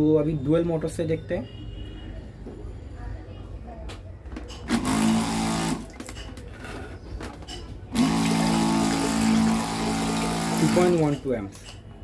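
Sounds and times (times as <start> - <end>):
pressure pump humming: 4.7 - 6.1, 7.9 - 11.2.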